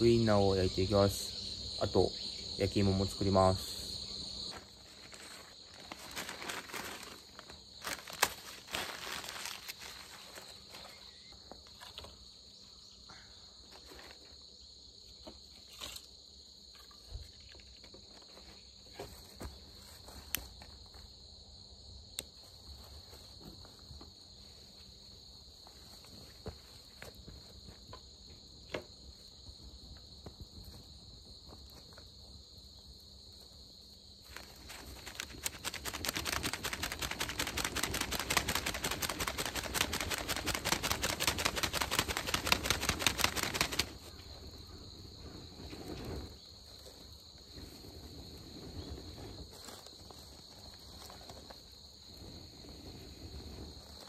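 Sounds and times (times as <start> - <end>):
insects trilling: 0.0 - 54.0
paper and wood rustling: 4.5 - 12.2, 34.2 - 44.1.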